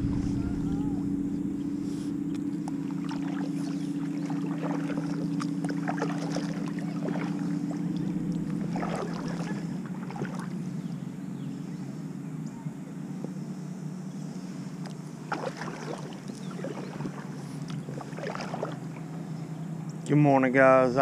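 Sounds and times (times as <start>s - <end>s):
steady low hum: 0.0s - 21.0s
water splashing off paddle: 2.9s - 10.6s, 15.3s - 18.9s.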